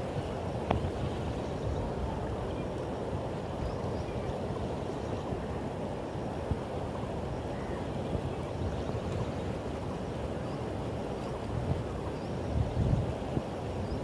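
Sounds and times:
river rushing: 0:00.0 - 0:14.0.

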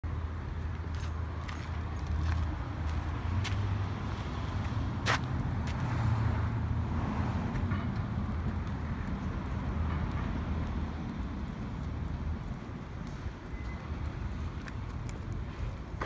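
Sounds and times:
traffic rumble and car engines: 0:00.0 - 0:16.0.

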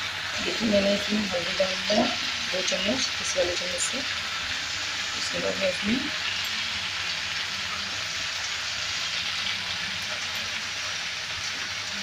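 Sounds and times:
vegetables sizzling in oil: 0:00.0 - 0:12.0.

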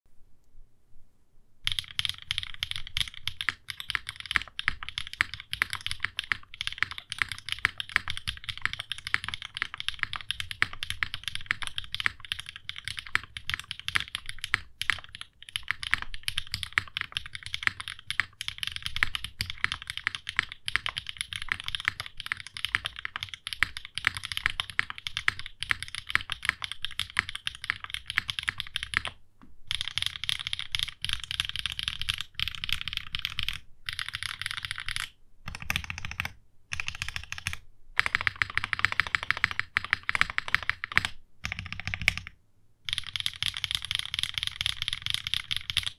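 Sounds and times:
mechanical keyboard typing: 0:01.7 - 0:45.9.

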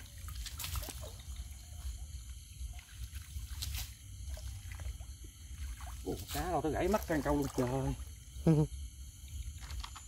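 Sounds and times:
water splash: 0:00.0 - 0:01.6, 0:02.7 - 0:08.1
water sloshing and trickling: 0:00.0 - 0:10.0.

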